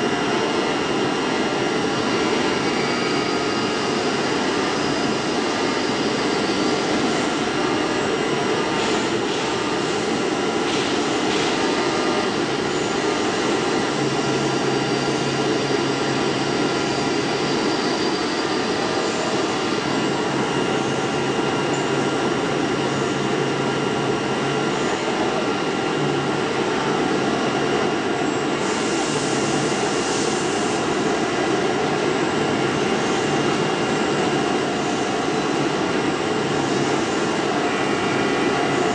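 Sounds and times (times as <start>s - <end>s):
machine whining tones: 2.0s - 26.2s.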